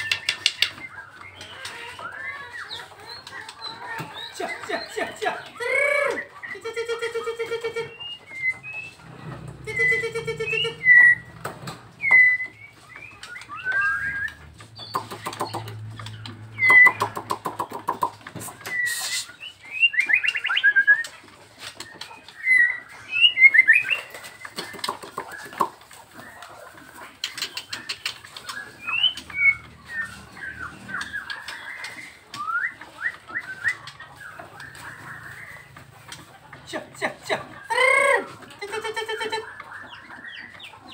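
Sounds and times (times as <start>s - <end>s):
bird singing whistles and trills: 7.8s - 9.0s, 9.6s - 11.3s, 12.0s - 15.7s, 16.5s - 17.2s, 18.4s - 21.1s, 22.4s - 24.9s, 27.6s - 34.4s.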